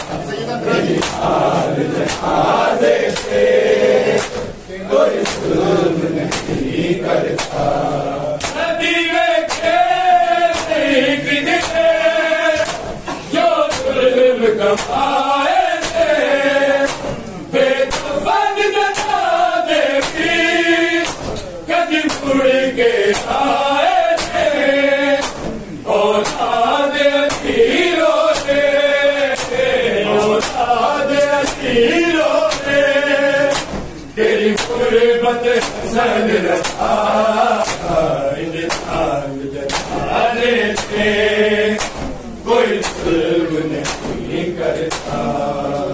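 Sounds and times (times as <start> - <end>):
men singing a chanted lament: 0.0 - 45.9
hand slaps on bare chests: 0.9 - 4.5, 5.2 - 5.6, 6.2 - 6.6, 7.3 - 7.7, 8.4 - 14.0, 14.7 - 17.3, 17.9 - 18.2, 18.9 - 20.4, 21.0 - 22.5, 23.1 - 24.6, 25.2 - 25.6, 26.2 - 26.6, 27.3 - 32.8, 33.5 - 34.8, 35.5 - 36.9, 37.6 - 38.0, 38.7 - 39.0, 39.7 - 41.1, 41.8 - 42.2, 42.8 - 43.2, 43.8 - 44.2, 44.8 - 45.2.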